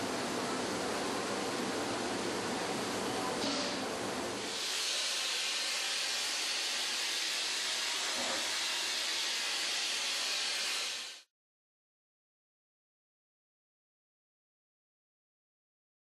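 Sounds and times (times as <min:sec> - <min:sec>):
steady hiss: 0:00.0 - 0:11.3.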